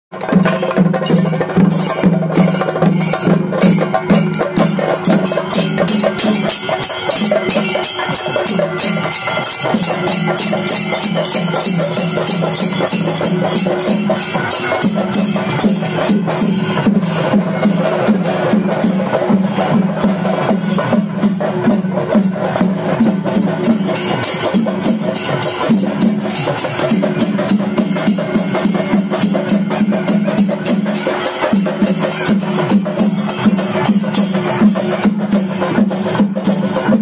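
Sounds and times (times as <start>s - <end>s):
drums beaten with sticks: 0.1s - 37.0s.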